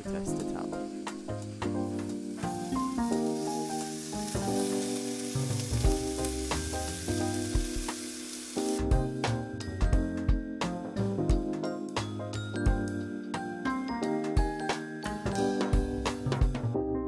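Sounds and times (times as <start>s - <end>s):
background music with bass: 0.1s - 3.3s, 5.4s - 7.9s, 8.7s - 17.0s
steak sizzling on grill: 0.1s - 9.6s.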